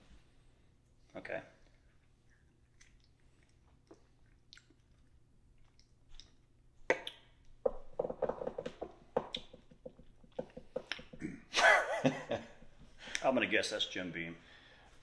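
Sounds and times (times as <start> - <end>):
wet mouth smacks and clicks: 2.0 - 7.6.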